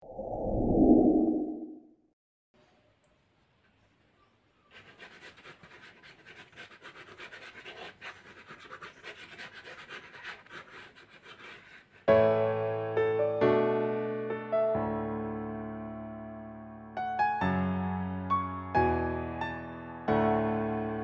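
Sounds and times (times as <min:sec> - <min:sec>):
pen scribbling on paper: 0:04.7 - 0:12.1
piano chords: 0:12.1 - 0:21.0.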